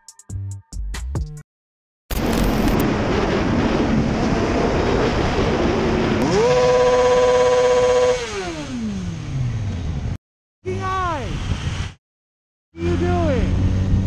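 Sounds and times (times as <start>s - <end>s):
wind rush: 2.1s - 8.3s, 9.9s - 12.0s
motorcycle engine revving: 3.0s - 10.2s, 12.8s - 14.0s.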